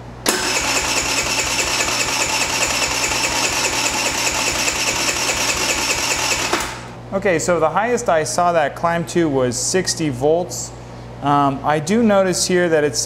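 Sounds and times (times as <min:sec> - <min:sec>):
electric starter cranking engine: 0:00.2 - 0:07.0.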